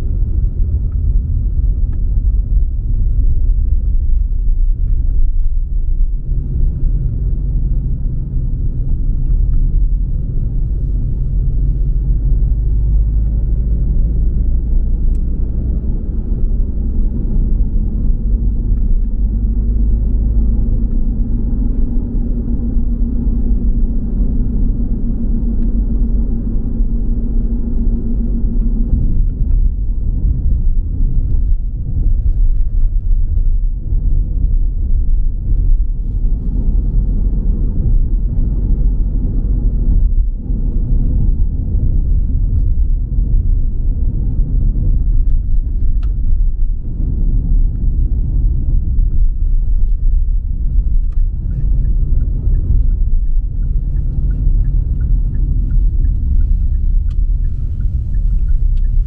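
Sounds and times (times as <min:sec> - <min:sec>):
car road rumble: 0:00.0 - 0:59.0.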